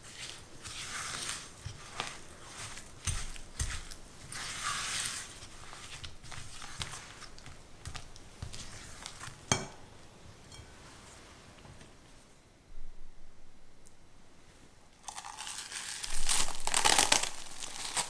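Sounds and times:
spatula stirring thick mixture: 0:00.0 - 0:09.6.

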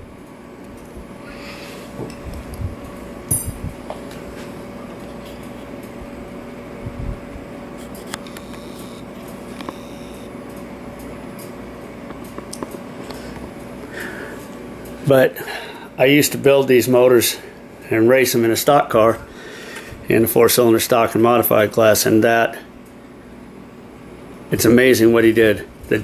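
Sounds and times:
room hum with faint tone: 0:00.0 - 0:26.0.

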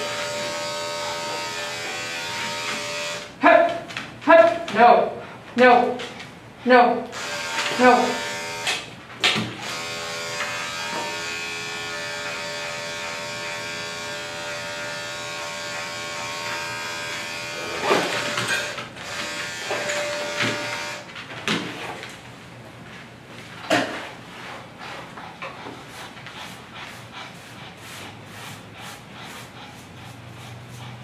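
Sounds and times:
electric clippers humming: 0:00.0 - 0:03.4, 0:07.1 - 0:21.1.

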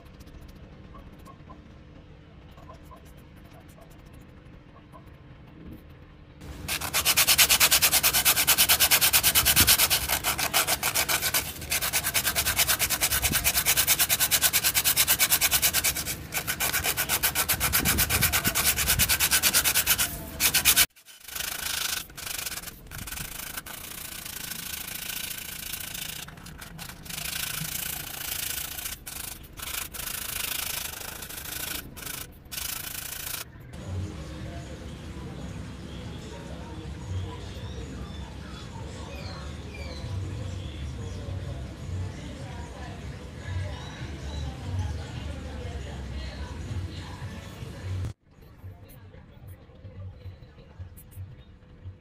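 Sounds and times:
sandpaper rubbing back and forth: 0:06.4 - 0:33.5.

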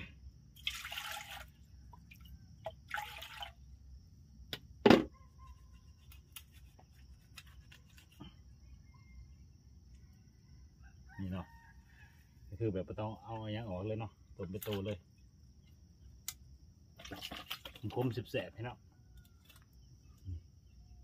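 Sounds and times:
water pouring from a dipper: 0:00.6 - 0:03.6, 0:17.0 - 0:18.2.

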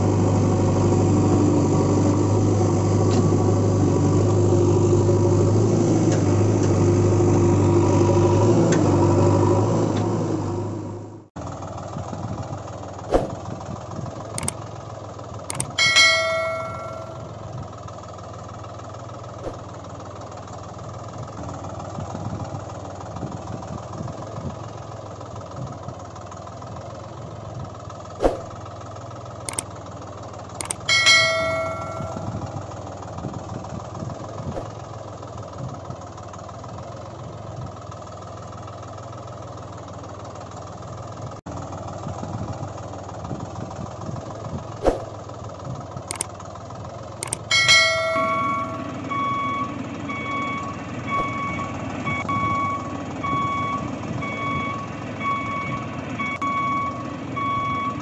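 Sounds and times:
engine drone: 0:00.0 - 0:58.0
sharp clicks: 0:15.5 - 0:15.8, 0:30.6 - 0:30.9, 0:46.1 - 0:46.3, 0:47.2 - 0:47.5
ringing bell-like tone: 0:15.5 - 0:17.4, 0:30.6 - 0:32.5, 0:47.2 - 0:49.8.

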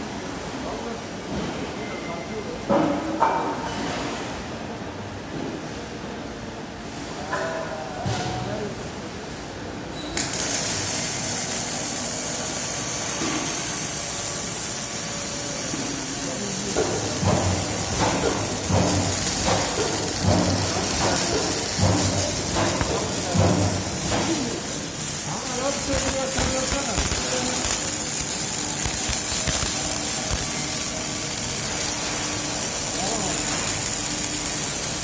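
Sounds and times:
welding arc hiss and crackle: 0:10.1 - 0:35.0.

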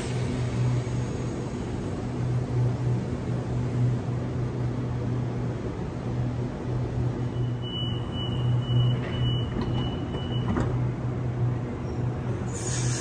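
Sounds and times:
door warning beeps: 0:07.4 - 0:10.8
train doors sliding shut: 0:08.0 - 0:11.0, 0:11.7 - 0:13.0.

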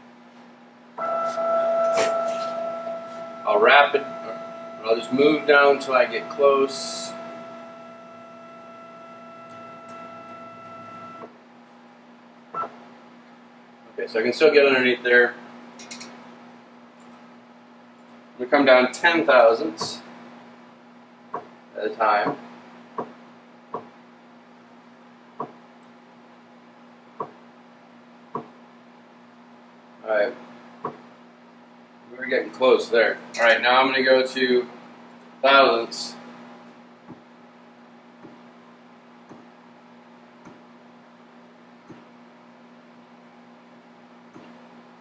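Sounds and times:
steady low hum: 0:00.0 - 0:45.0
stepper motor whining: 0:01.0 - 0:11.3
stepper drive clicks: 0:09.4 - 0:11.3.

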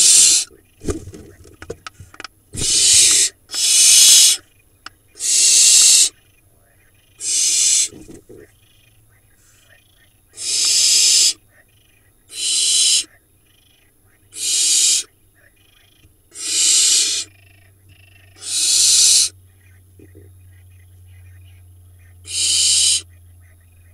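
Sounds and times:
owl nestlings hissing screeches: 0:00.0 - 0:01.1, 0:01.8 - 0:04.5, 0:05.1 - 0:06.2, 0:07.0 - 0:08.1, 0:10.4 - 0:11.4, 0:12.3 - 0:13.1, 0:14.3 - 0:15.1, 0:16.3 - 0:17.4, 0:18.3 - 0:19.4, 0:22.2 - 0:23.1.

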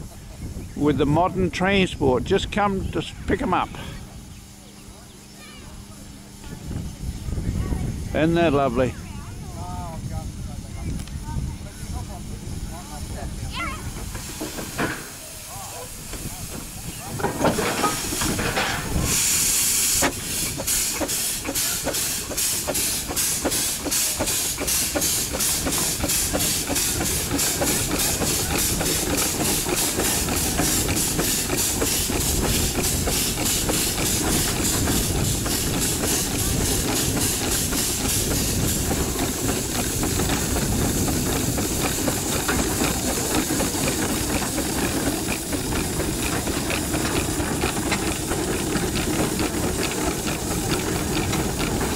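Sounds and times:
steam hiss: 0:11.8 - 0:51.9
steam engine exhaust chuffs: 0:13.9 - 0:51.9.

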